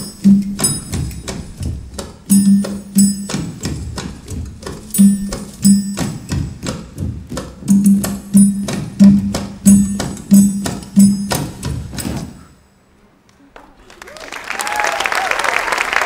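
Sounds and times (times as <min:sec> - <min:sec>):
lighter drum hits: 0:00.0 - 0:12.3
pitched drum strikes: 0:00.0 - 0:12.5.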